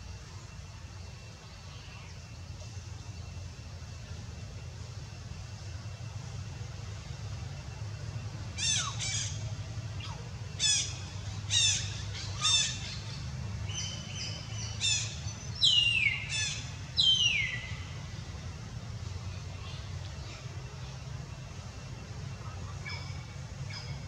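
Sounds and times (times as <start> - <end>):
infant monkey high-pitched calls: 8.5 - 17.9, 22.3 - 24.0.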